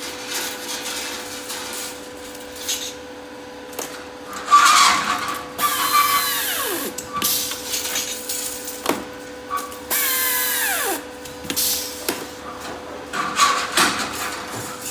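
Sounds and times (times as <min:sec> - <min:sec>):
steady machine hum: 0:00.0 - 0:14.9
pneumatic tool hiss and whine: 0:05.6 - 0:07.5, 0:09.5 - 0:11.9.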